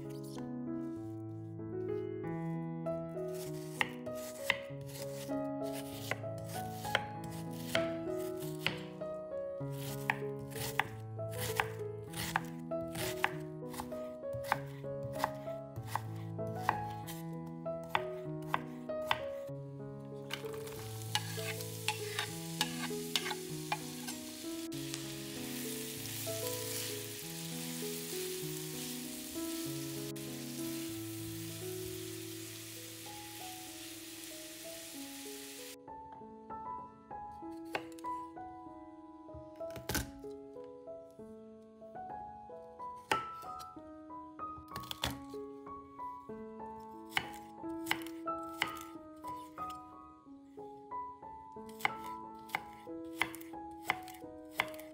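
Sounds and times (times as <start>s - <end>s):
background music: 0.0s - 41.2s, 41.8s - 54.9s
knife chopping on cutting board: 3.4s - 5.0s, 6.8s - 8.9s, 9.8s - 17.2s, 17.8s - 19.3s, 20.3s - 24.4s, 37.6s - 38.0s, 47.1s - 49.5s, 51.8s - 54.8s
food sizzling in a pan: 20.3s - 35.8s.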